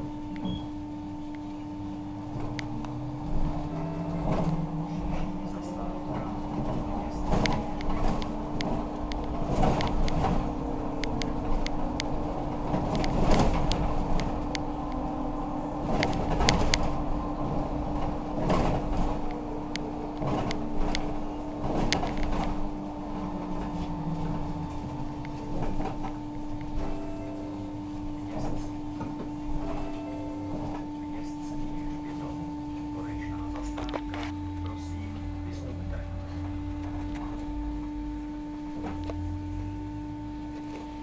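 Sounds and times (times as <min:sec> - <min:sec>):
road rumble: 0:00.0 - 0:41.0
trolleybus electric hum: 0:00.0 - 0:41.0
bodywork rattling and knocking: 0:02.2 - 0:31.0.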